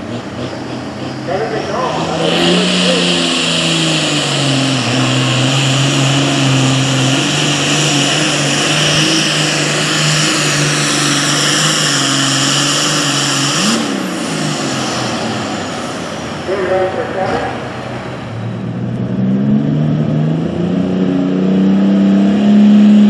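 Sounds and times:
diesel engine drone: 0.0 - 23.0.

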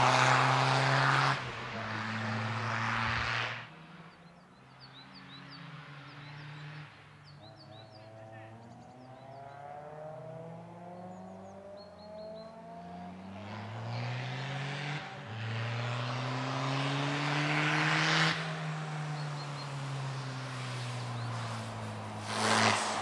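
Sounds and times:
race car engine accelerating: 0.0 - 3.7, 4.9 - 23.0
birds chirping faintly: 3.8 - 14.6, 18.5 - 22.0.

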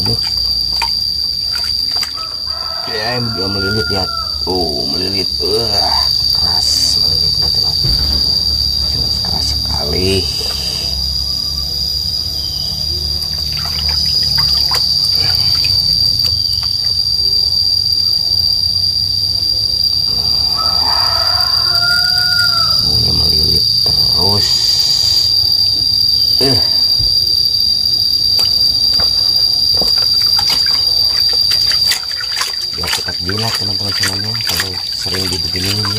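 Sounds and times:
water splashing in basin: 0.0 - 3.3, 13.2 - 17.0, 28.3 - 35.9
high-pitched insect drone: 0.0 - 35.9.

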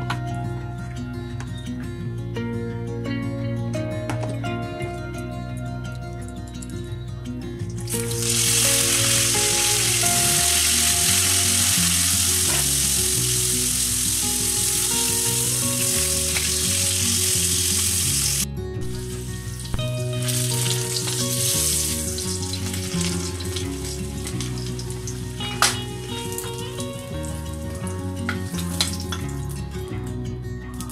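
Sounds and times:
vegetables sizzling in hot oil: 7.9 - 18.4, 19.0 - 27.4.

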